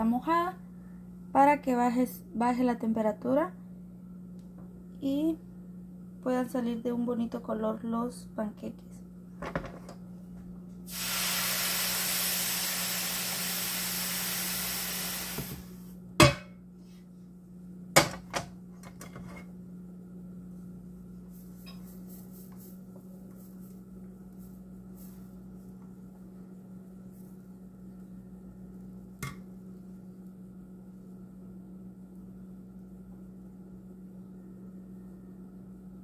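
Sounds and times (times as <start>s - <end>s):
steady low hum: 0.0s - 36.0s
hot pan hissing with steam: 10.9s - 15.8s.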